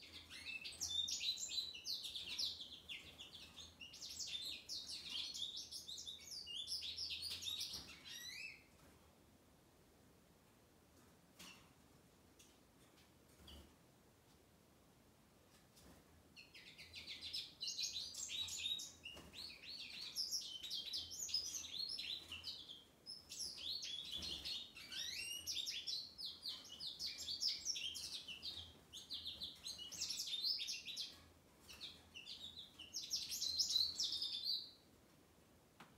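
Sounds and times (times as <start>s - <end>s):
bird twittering song: 0.0s - 8.7s, 16.4s - 34.8s.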